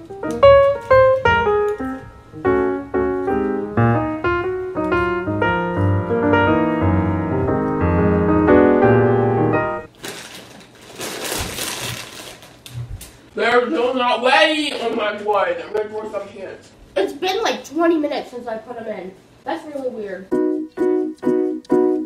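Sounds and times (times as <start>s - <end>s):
piano chords: 0.0s - 9.9s, 20.3s - 22.0s
rustling noise: 0.4s - 3.5s, 4.2s - 6.1s, 9.9s - 13.3s.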